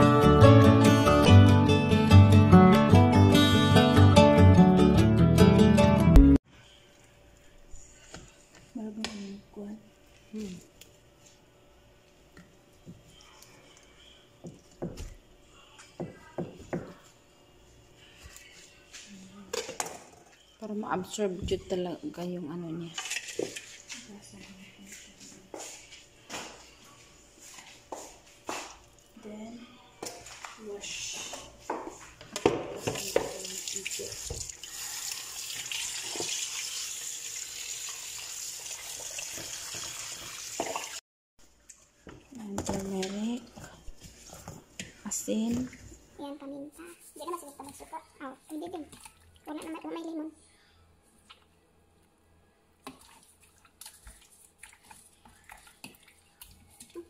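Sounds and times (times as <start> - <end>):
water splashes and knocks: 32.4 - 34.6, 39.1 - 41.0
hands rinsing chicken: 32.8 - 41.0, 52.8 - 57.0
tap running into sink: 39.2 - 41.0.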